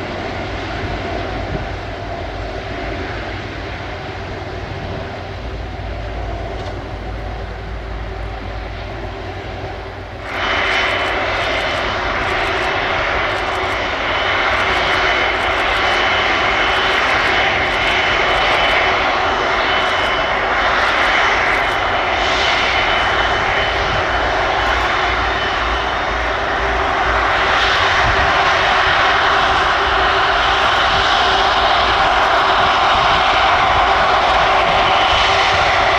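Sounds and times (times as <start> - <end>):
jet aircraft taxiing: 0.0 - 35.9.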